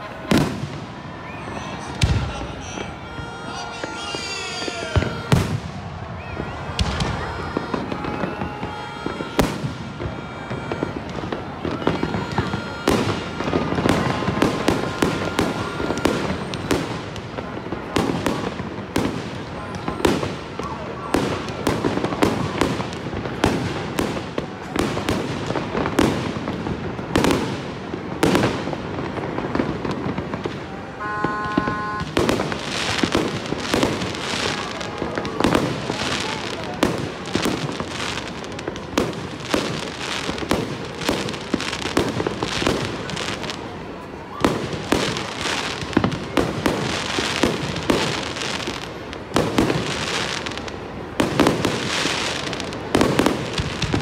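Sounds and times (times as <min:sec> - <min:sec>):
fireworks bursting: 0:00.0 - 0:54.0
fireworks crackling: 0:00.0 - 0:54.0.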